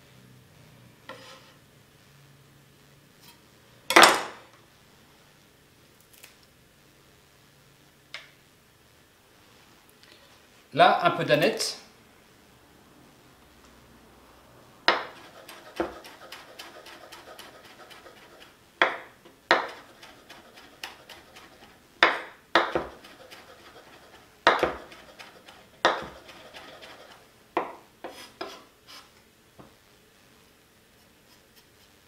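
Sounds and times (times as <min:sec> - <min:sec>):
knife chopping on wooden board: 0:14.9 - 0:28.6.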